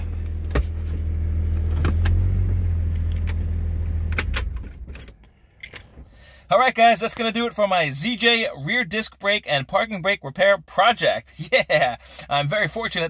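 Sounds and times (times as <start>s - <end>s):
car engine idling: 0.0s - 7.7s.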